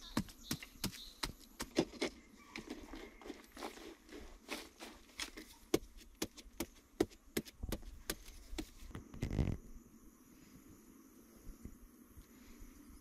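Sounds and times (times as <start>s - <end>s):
digging tool scraping dry earth: 0.2s - 9.6s.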